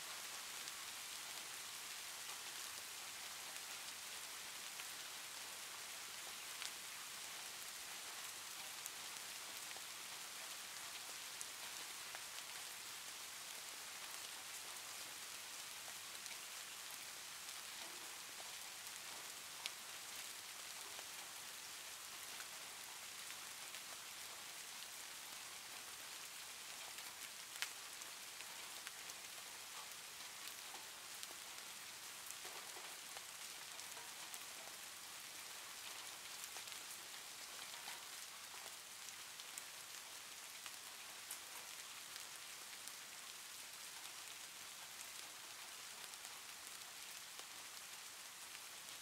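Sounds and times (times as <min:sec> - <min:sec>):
steady rain hiss: 0:00.0 - 0:49.0.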